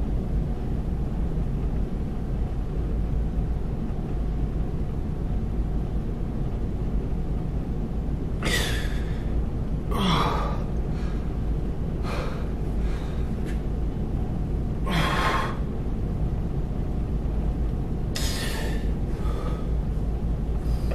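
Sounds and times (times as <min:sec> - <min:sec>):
low background rumble: 0:00.0 - 0:20.9
man breathing forcefully: 0:08.4 - 0:13.7, 0:14.8 - 0:15.8, 0:18.2 - 0:20.9.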